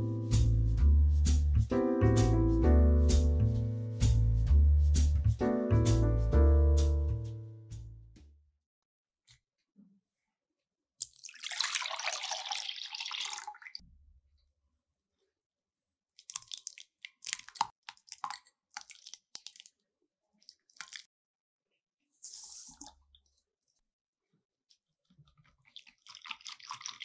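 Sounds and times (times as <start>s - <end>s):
liquid pouring into bowl: 11.0s - 13.8s, 16.2s - 19.8s, 20.4s - 21.1s, 25.5s - 27.0s.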